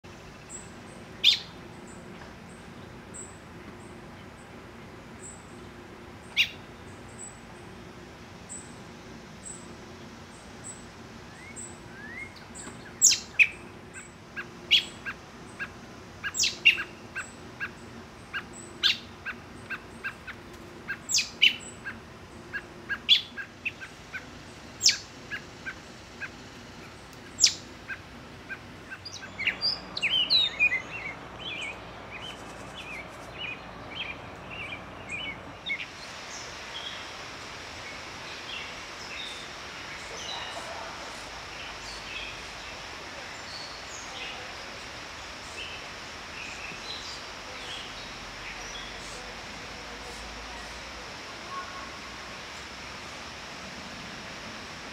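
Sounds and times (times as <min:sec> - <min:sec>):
fledgling bird begging calls: 0:11.4 - 0:32.3.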